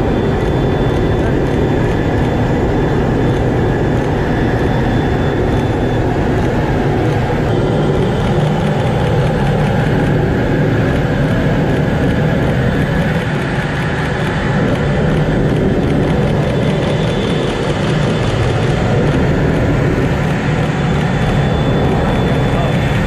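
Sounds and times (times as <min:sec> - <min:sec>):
jet engine and airflow rush: 0:00.0 - 0:23.0.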